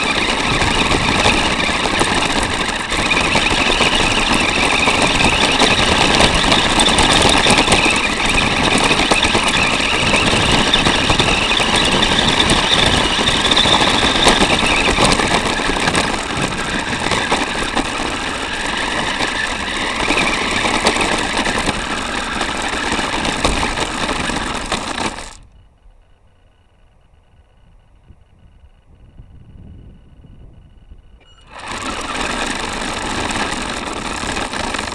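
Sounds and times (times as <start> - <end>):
plastic body rattling: 0.0 - 25.4, 31.2 - 34.9
toy car motor running: 0.0 - 25.4, 31.2 - 34.9.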